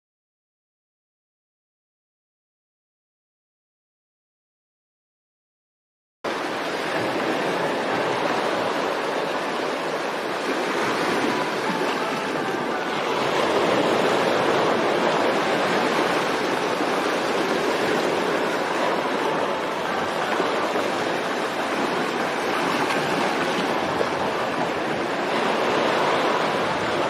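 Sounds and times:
water rushing: 0:06.3 - 0:27.0.

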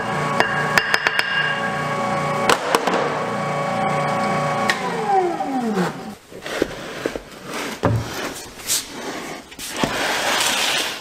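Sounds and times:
meat grinder motor hum: 0:00.0 - 0:00.8, 0:01.5 - 0:06.1.

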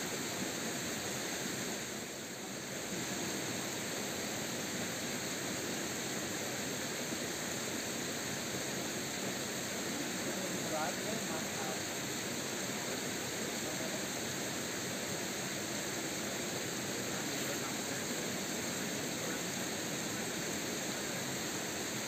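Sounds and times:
mountain stream flowing: 0:00.0 - 0:22.0.

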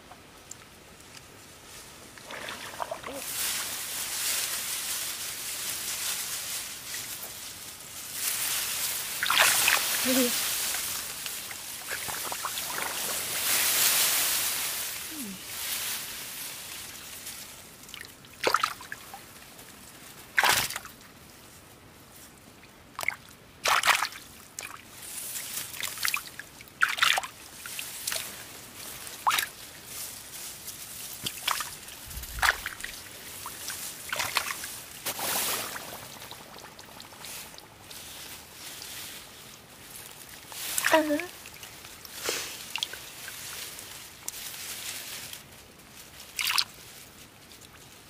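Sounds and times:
water sloshing and splashing: 0:02.2 - 0:05.0, 0:08.1 - 0:15.0, 0:17.9 - 0:19.2, 0:22.9 - 0:29.6, 0:30.4 - 0:45.1, 0:46.2 - 0:46.8
water dripping and trickling: 0:31.2 - 0:39.0, 0:40.0 - 0:43.6.

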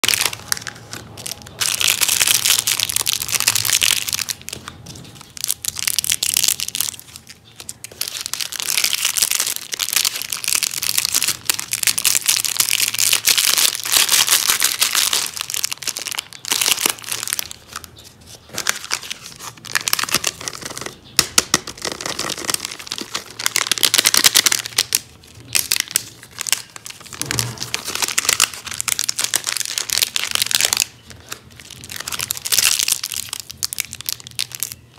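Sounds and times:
plastic wrappers crinkling: 0:00.0 - 0:34.9.

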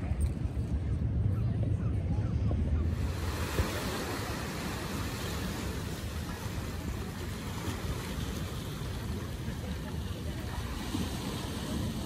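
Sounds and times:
ocean surf rushing: 0:02.9 - 0:12.0.

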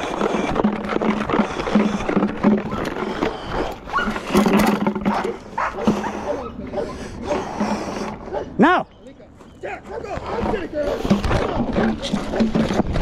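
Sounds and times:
dog barking: 0:05.0 - 0:07.4, 0:08.2 - 0:08.6, 0:09.7 - 0:11.1.

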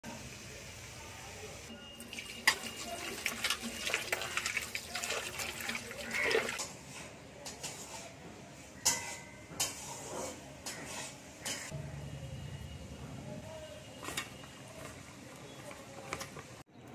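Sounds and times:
metal bowl and utensils clinking: 0:02.0 - 0:08.2, 0:08.8 - 0:11.8
tap water splashing into bowl: 0:02.1 - 0:06.6.

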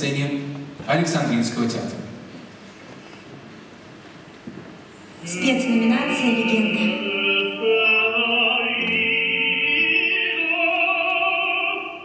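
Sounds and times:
operatic singing with orchestra: 0:05.2 - 0:12.0.

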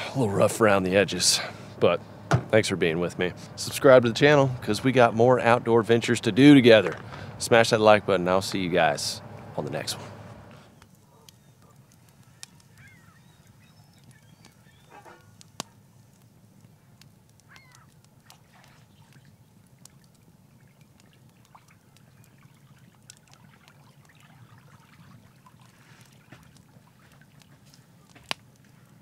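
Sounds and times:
low steady rumble: 0:00.0 - 0:10.8
wood fire crackling and popping: 0:00.0 - 0:29.0
distant waterfowl calls: 0:06.9 - 0:15.7, 0:17.4 - 0:19.3
eggs frying in pan: 0:15.4 - 0:27.6.

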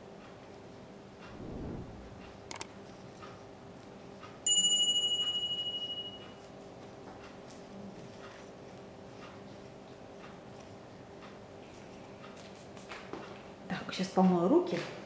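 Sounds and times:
bright ringing ding: 0:04.5 - 0:06.3.

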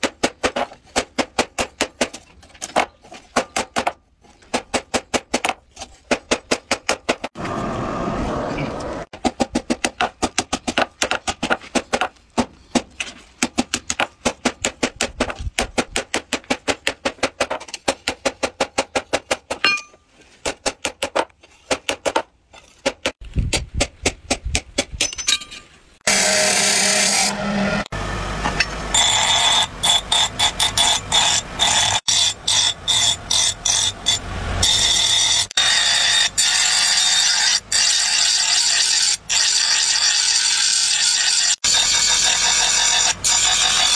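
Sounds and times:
hammer striking steel on anvil: 0:19.6 - 0:20.0.

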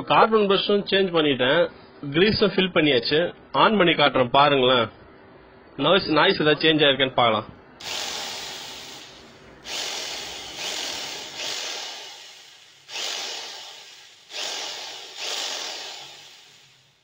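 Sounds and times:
rotary hammer drill motor pulses: 0:07.8 - 0:17.0.

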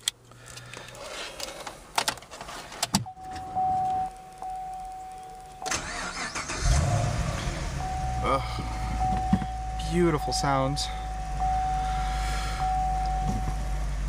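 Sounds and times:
steady high tone: 0:03.2 - 0:13.8
engine starter cranking: 0:05.6 - 0:07.8
engine firing: 0:05.6 - 0:09.6.

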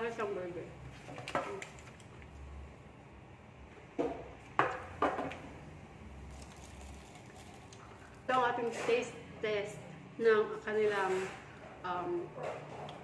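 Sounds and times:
faint room hum: 0:00.0 - 0:13.0
food wrapping crinkling: 0:01.2 - 0:02.3, 0:06.2 - 0:08.2.

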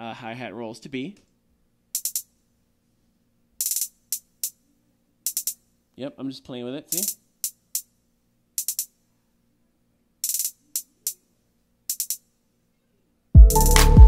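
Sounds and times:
hi-hat rolls: 0:01.9 - 0:02.4, 0:03.6 - 0:05.7, 0:06.9 - 0:08.0, 0:08.6 - 0:09.0, 0:10.2 - 0:11.3, 0:11.9 - 0:12.3, 0:13.5 - 0:14.0
hip-hop beat: 0:13.4 - 0:14.0.

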